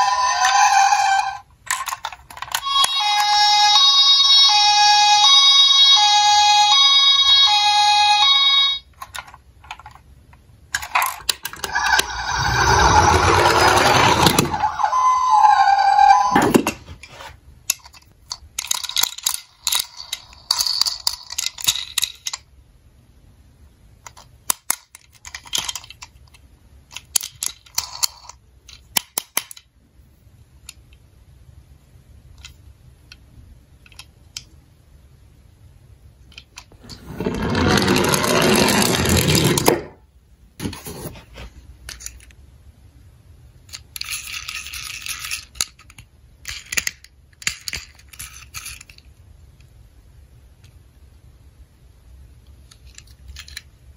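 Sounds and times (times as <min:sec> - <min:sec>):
toys clicking and clattering: 0:00.0 - 0:04.4, 0:08.1 - 0:22.5, 0:24.0 - 0:29.7, 0:32.3 - 0:34.6, 0:36.2 - 0:40.0, 0:41.8 - 0:42.4, 0:43.6 - 0:49.7, 0:52.4 - 0:53.8.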